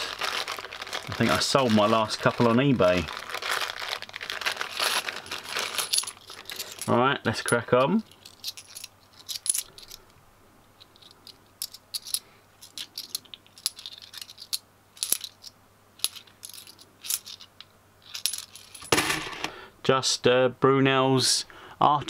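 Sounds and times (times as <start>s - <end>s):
coins clinking: 4.7s - 10.0s, 10.8s - 19.5s.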